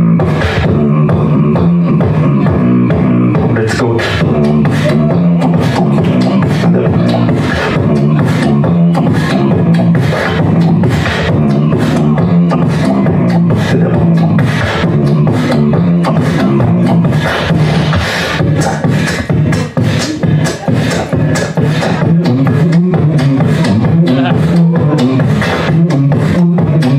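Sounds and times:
human beatbox: 0.0s - 26.9s
hummed bass line: 0.0s - 26.9s.

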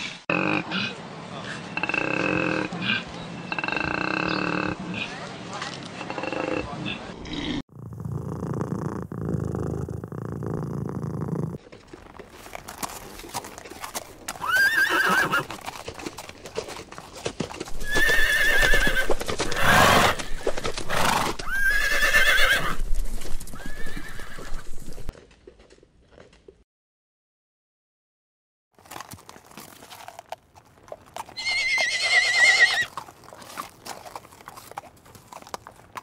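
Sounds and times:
cat purring: 7.7s - 11.6s
zebras whinnying: 14.3s - 15.6s, 17.7s - 22.8s, 23.5s - 25.1s, 31.4s - 32.9s.

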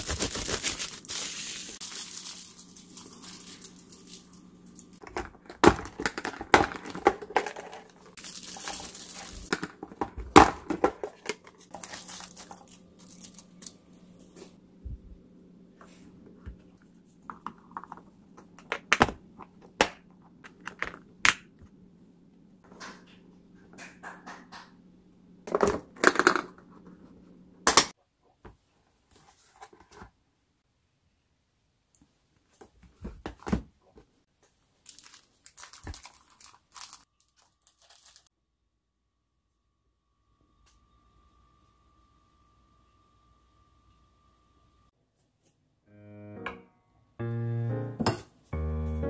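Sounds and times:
foil bag lining crinkling: 0.0s - 5.4s, 7.4s - 9.8s, 11.0s - 14.6s, 34.8s - 38.3s.

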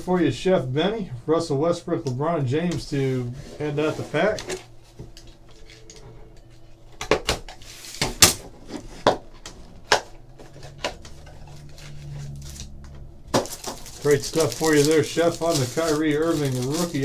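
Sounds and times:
card pack wrapper crackling: 11.5s - 17.0s.

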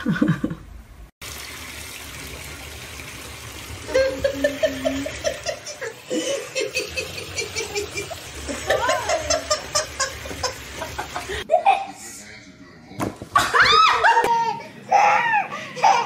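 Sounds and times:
person laughing: 3.9s - 11.9s.

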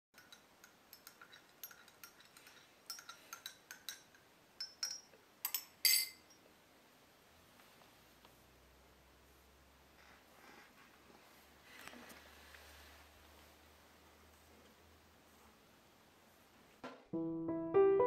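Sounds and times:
teaspoon clinking in a cup: 0.2s - 6.4s.

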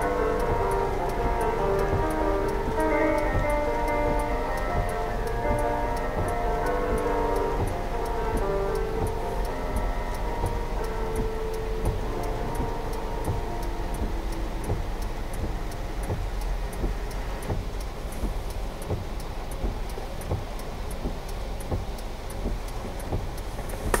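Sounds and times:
background music: 0.0s - 16.2s
car cabin low rumble: 0.0s - 24.0s
fast even ticking: 0.0s - 24.0s.

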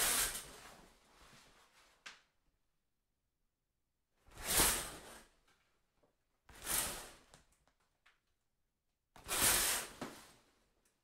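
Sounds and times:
shower curtain swishing on rod: 0.0s - 2.0s, 4.3s - 5.4s, 6.5s - 7.4s, 9.2s - 10.6s.

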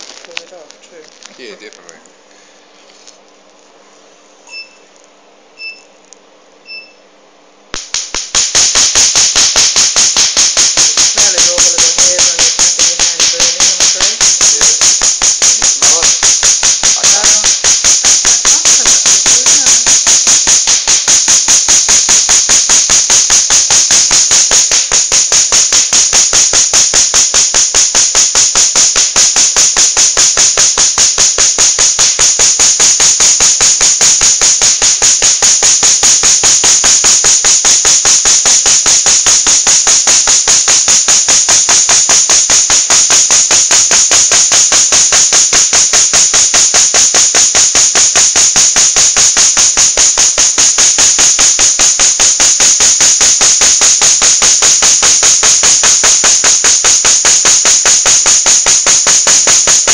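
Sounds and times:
short beeps: 4.5s - 4.9s, 5.6s - 6.0s, 6.6s - 7.1s
laser firing sharp snaps: 7.7s - 59.9s.

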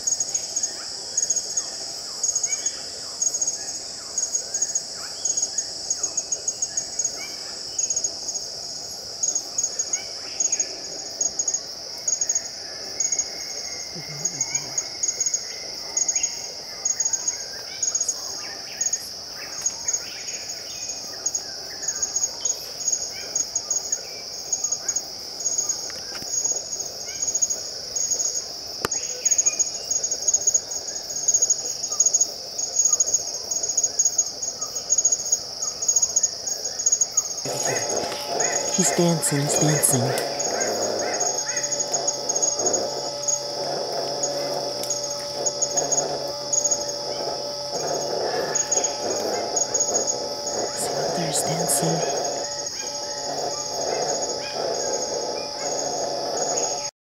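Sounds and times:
high insect chorus: 0.0s - 57.0s
bird calls: 37.5s - 56.9s
fast chirps: 37.5s - 56.9s.

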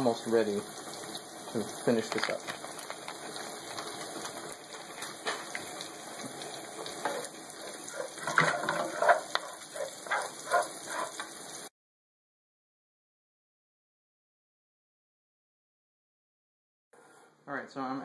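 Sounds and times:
food sizzling in a frying pan: 0.0s - 11.7s
utensil scraping the pan: 2.7s - 11.5s.

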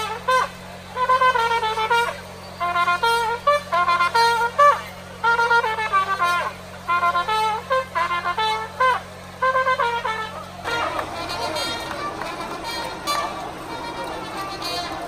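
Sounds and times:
wind instrument melody: 0.0s - 15.0s.

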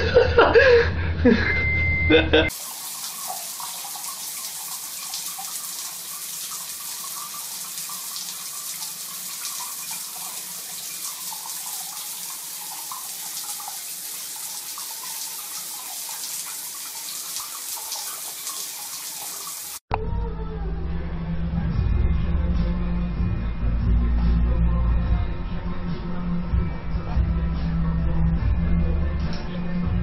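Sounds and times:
water running from a sink tap: 2.5s - 19.8s.

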